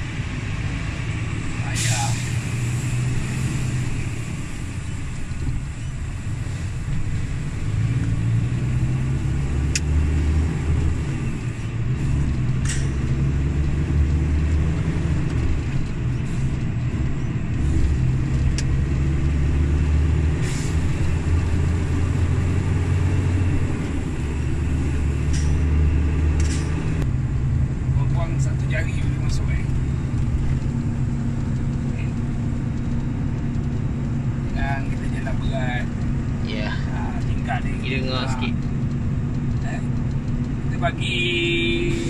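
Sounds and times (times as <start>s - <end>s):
diesel truck engine drone: 0.0s - 42.0s
sharp clicks and rattles: 10.7s - 18.8s, 28.2s - 41.2s.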